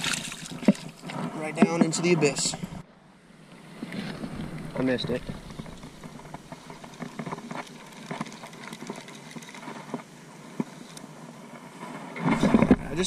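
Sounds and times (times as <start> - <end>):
faint irregular clicks: 3.8 - 11.1
handling rustle: 3.8 - 11.1.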